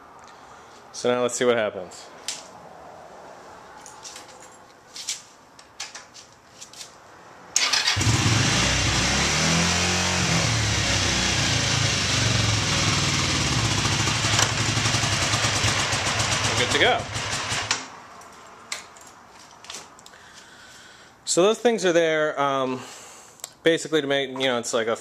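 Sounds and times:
motorcycle engine starting and running: 7.6 - 17.9.

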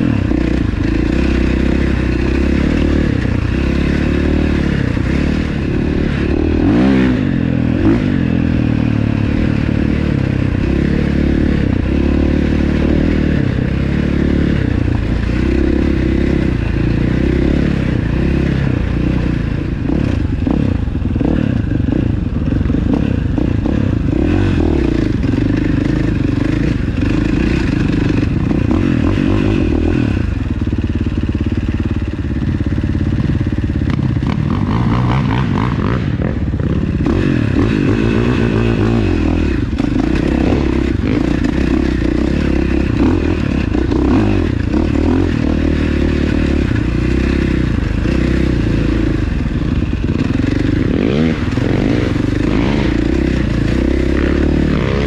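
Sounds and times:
quad bike engine revving: 0.0 - 55.0.

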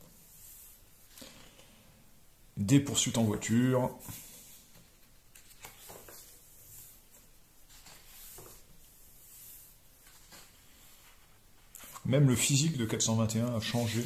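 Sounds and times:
hand touching paper: 2.9 - 12.2
paper page turning: 4.7 - 8.8, 10.0 - 12.1.

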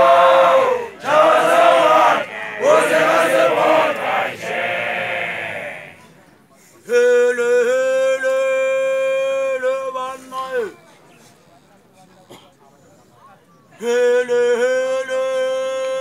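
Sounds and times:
group of voices chanting: 0.0 - 6.1.

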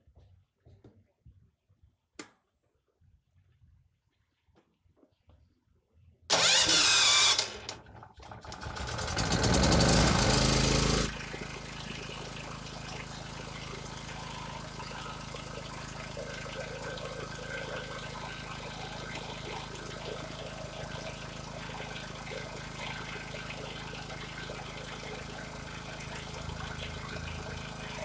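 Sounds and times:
generator engine running: 6.3 - 28.0
generator engine starting: 6.3 - 28.0.

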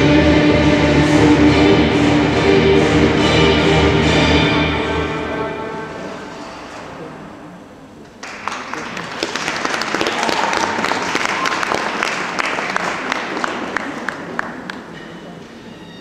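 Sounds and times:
audience applauding: 8.2 - 14.9.

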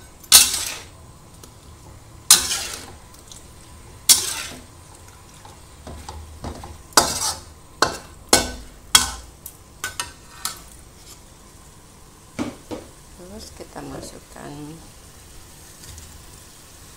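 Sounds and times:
metal spatula scraping wok: 0.2 - 1.0, 2.2 - 3.0, 4.0 - 4.8, 5.4 - 11.3.

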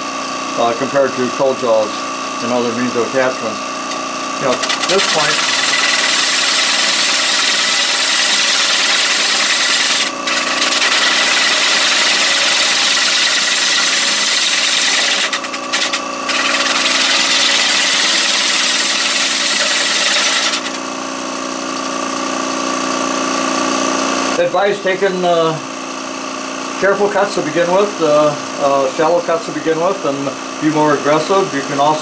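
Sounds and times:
lathe motor hum: 0.7 - 24.4.

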